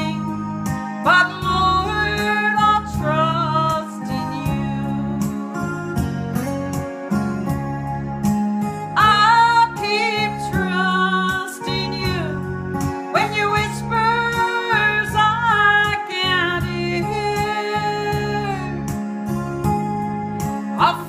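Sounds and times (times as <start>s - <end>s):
woman singing into a microphone: 0.0s - 6.5s, 8.9s - 19.0s, 20.8s - 21.0s
instrumental accompaniment: 0.0s - 21.0s.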